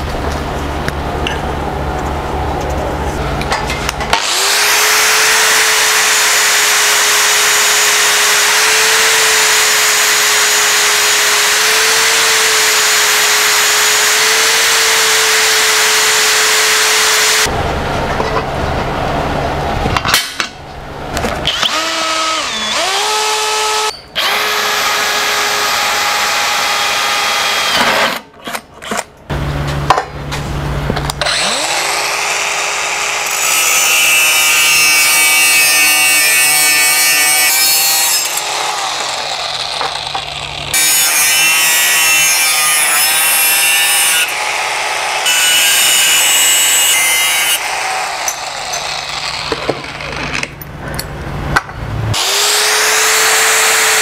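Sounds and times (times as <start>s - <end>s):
grinder cutting steel: 3.7s - 17.5s, 21.4s - 28.3s, 31.2s - 50.6s, 52.1s - 54.0s
angle grinder motor whine: 21.5s - 27.9s.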